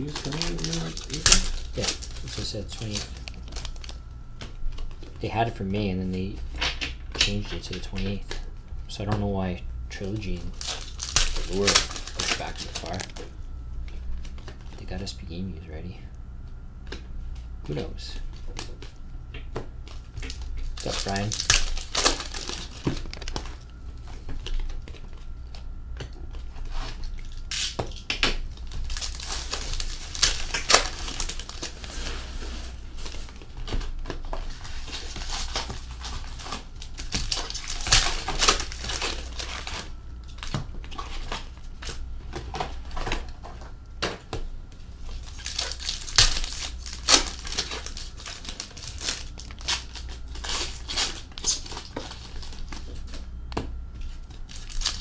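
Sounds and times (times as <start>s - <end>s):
card pack wrappers tearing: 0.0s - 4.0s, 10.0s - 13.3s, 19.9s - 23.8s, 26.8s - 42.0s, 45.1s - 53.2s, 54.0s - 55.0s.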